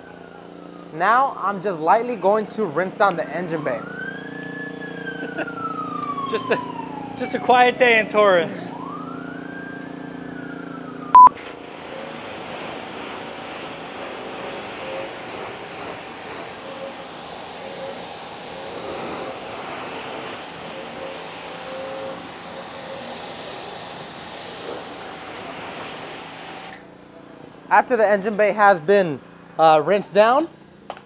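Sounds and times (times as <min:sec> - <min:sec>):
siren: 0:00.0 - 0:11.4, 0:16.6 - 0:18.8, 0:20.3 - 0:24.1
short loud beep: 0:11.2 - 0:11.4
pressure washer water spray hiss: 0:11.3 - 0:26.9.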